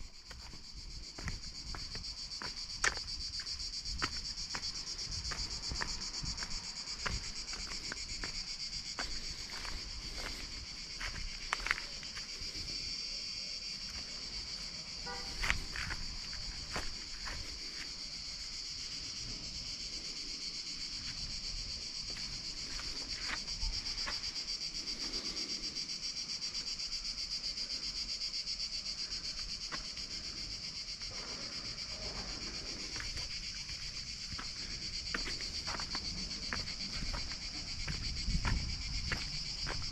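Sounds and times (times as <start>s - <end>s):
footsteps on stone steps: 0.0s - 12.5s, 13.6s - 19.2s, 21.0s - 24.4s, 29.2s - 30.3s, 30.9s - 39.9s
cicadas buzzing: 0.0s - 39.9s.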